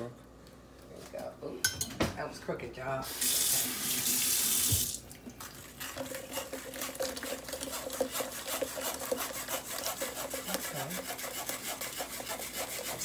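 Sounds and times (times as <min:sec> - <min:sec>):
faucet running into a metal sink: 0:03.1 - 0:05.0.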